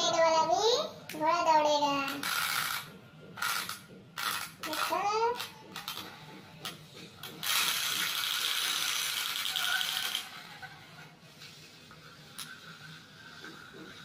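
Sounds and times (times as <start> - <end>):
wind-up toy gears rattling: 2.0 - 6.0, 7.4 - 10.6.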